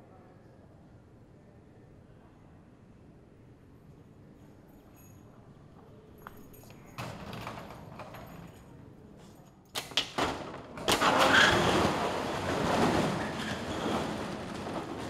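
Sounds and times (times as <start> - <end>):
shutter rattling up: 9.8 - 15.0.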